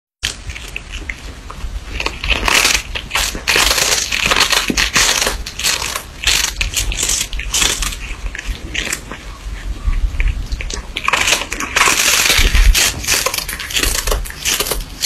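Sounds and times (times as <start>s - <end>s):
cat crunching dried fish: 0.2s - 15.0s.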